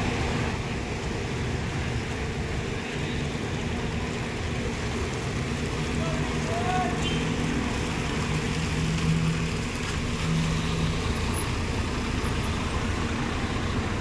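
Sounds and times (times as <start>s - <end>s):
traffic noise: 0.0s - 14.0s
bus engine humming: 3.8s - 14.0s.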